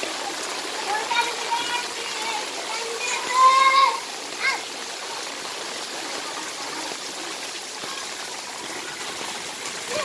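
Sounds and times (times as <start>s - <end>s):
rain hissing: 0.0s - 10.0s
shallow water running: 0.0s - 10.0s
child calling out: 0.9s - 4.7s.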